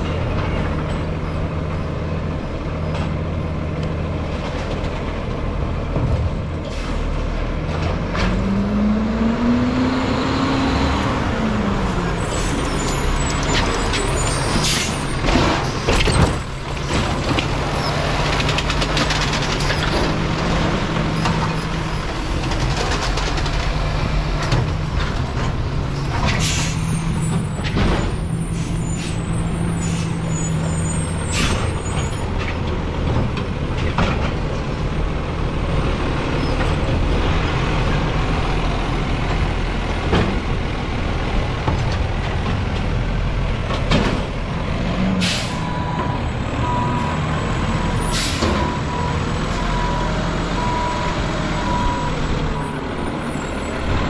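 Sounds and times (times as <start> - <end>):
diesel truck engine running: 0.0 - 54.0
bangs and clanks of recycling: 13.4 - 29.2, 31.3 - 34.6, 43.5 - 46.1.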